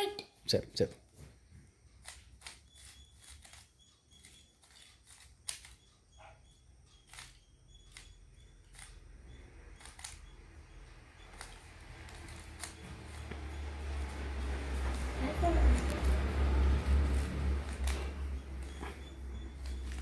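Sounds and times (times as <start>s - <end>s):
puzzle cube clicking: 2.0s - 5.8s, 7.0s - 9.0s, 9.7s - 10.3s, 11.2s - 13.5s, 17.2s - 20.0s.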